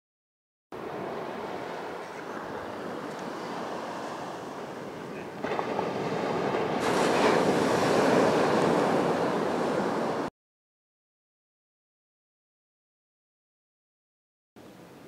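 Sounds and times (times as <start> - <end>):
surf breaking on beach: 0.8 - 10.3
wind on microphone: 0.8 - 10.3.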